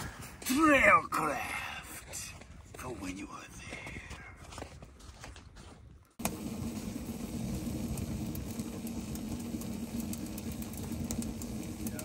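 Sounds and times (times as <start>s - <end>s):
fire crackling: 6.0s - 12.0s
wood stove fire rumbling: 6.1s - 12.0s.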